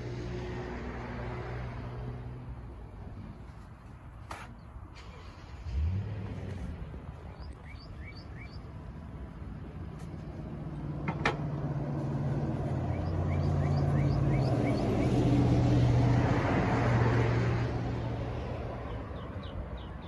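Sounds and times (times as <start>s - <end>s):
vehicle engine running: 5.7s - 15.6s
bird chirping: 7.3s - 8.8s, 12.6s - 15.2s.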